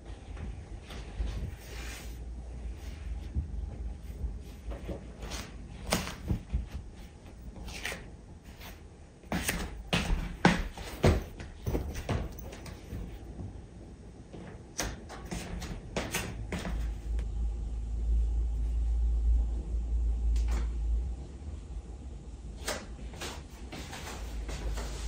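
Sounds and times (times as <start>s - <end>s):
low rumble: 16.9s - 22.6s.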